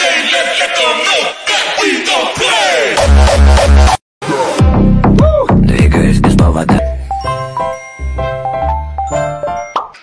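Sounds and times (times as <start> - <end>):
electronic music: 3.0 - 9.5.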